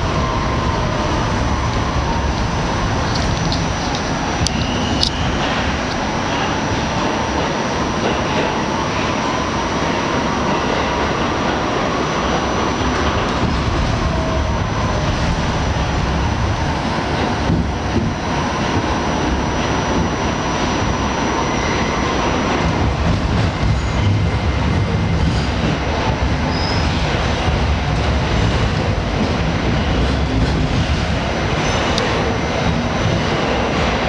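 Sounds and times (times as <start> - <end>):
subway car rumble and rattle: 0.0 - 34.0.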